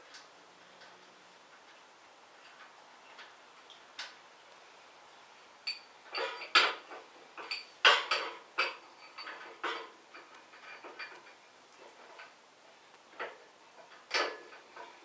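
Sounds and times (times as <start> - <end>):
metal parts clinking and clanking: 5.7 - 11.3.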